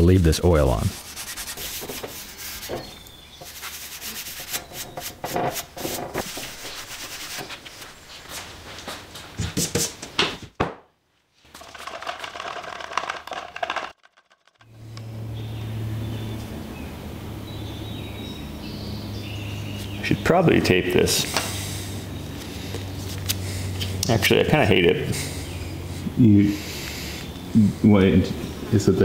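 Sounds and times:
hand scrubbing on steel: 0.8s - 7.9s.

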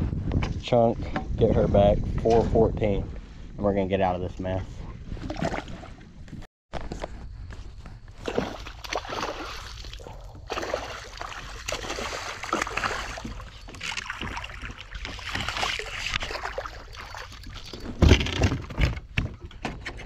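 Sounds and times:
water sloshing: 5.1s - 6.3s, 8.1s - 19.2s
handling noises on kayak hull: 11.4s - 20.0s.

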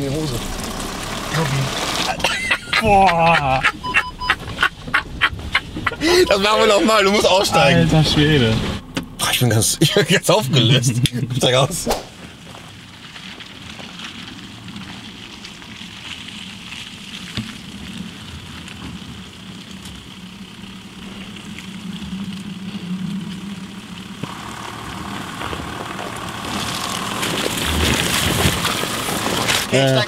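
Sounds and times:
low diesel engine note: 0.0s - 2.3s, 5.9s - 9.8s, 23.7s - 30.0s.

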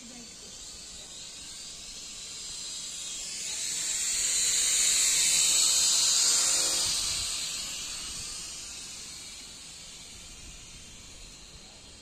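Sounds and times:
drone propellers whining: 0.0s - 12.0s.

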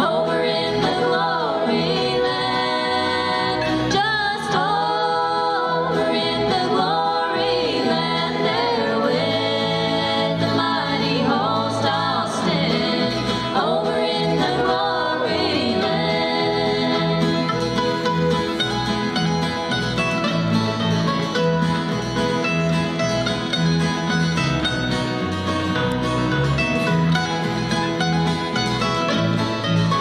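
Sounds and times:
woman singing: 0.0s - 17.5s
acoustic guitars strumming: 0.0s - 30.0s
bass line: 0.0s - 30.0s
plucked strings: 0.0s - 30.0s.

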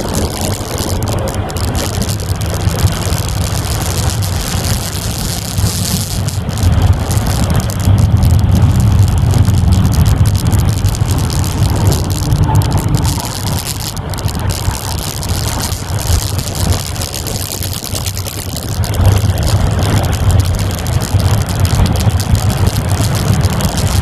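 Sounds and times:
car engine accelerating: 0.0s - 24.0s.

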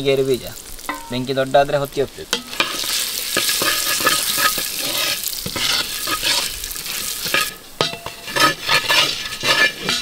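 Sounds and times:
food sizzling in a pan: 0.0s - 10.0s
spatula scraping a pan: 2.4s - 10.0s.

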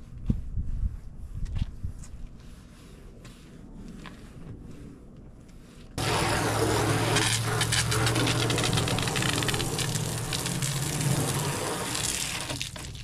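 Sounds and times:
low steady hum: 0.0s - 13.0s
hose water spraying on plastic: 6.0s - 13.0s.

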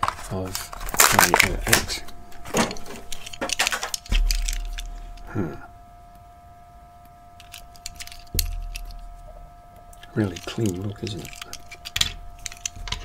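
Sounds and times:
plastic packaging clicks and rustling: 0.0s - 5.3s, 7.4s - 9.1s, 9.9s - 13.0s.

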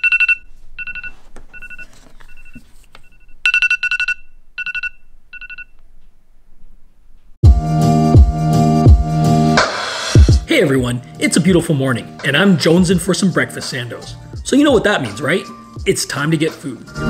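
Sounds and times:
phone alarm beeps: 0.0s - 5.7s
music with a beat: 7.4s - 10.5s, 12.2s - 16.0s.

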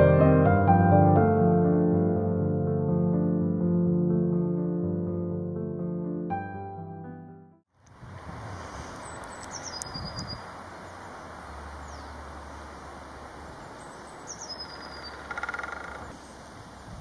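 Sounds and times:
faint high bird chirps: 8.9s - 16.5s
rapid knocking rattle: 14.9s - 16.2s.

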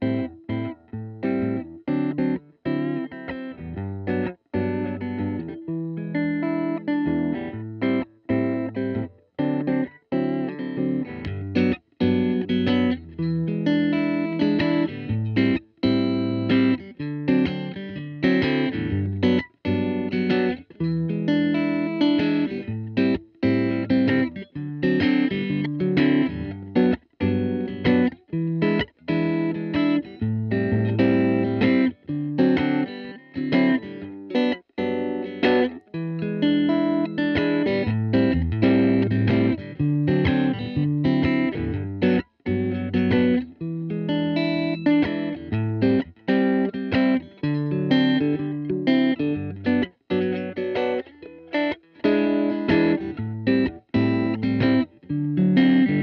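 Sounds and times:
electric guitar riffs: 0.0s - 56.0s.

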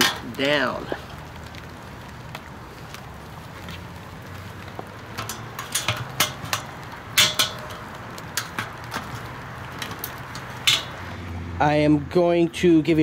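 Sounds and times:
metal grill legs clinking: 0.0s - 0.5s, 5.0s - 11.2s.

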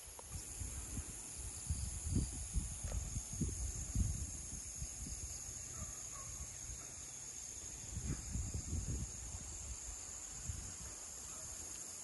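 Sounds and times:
chorus of field insects: 0.0s - 12.0s.

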